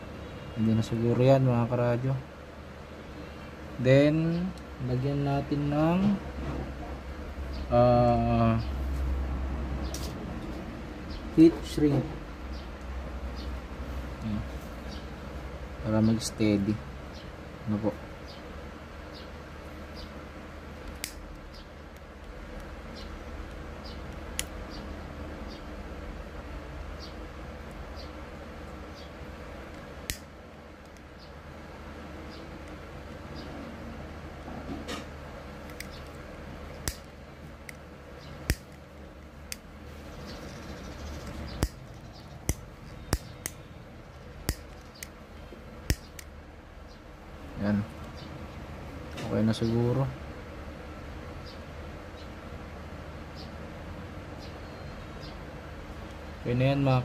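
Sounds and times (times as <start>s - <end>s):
steady low hum: 0.0s - 57.0s
sharp clicks: 20.8s - 22.7s, 36.8s - 38.8s, 41.1s - 43.6s, 44.4s - 45.2s, 45.8s - 46.3s
wire handling clicks: 20.8s - 22.7s, 35.6s - 36.2s, 36.8s - 37.8s, 38.4s - 38.8s, 39.4s - 39.7s, 44.4s - 45.2s
faint high chirp: 54.4s - 55.4s.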